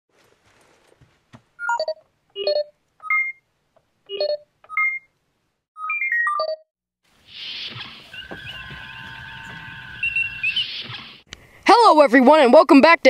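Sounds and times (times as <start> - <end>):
electronic keypad beeping: 1.6 - 3.4, 4.1 - 5.1.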